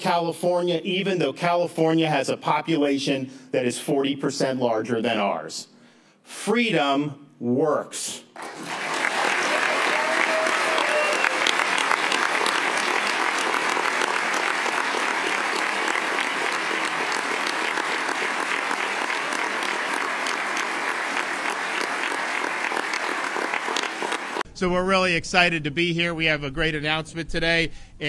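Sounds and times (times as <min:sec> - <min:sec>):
crowd applauding: 0:08.4 - 0:24.4.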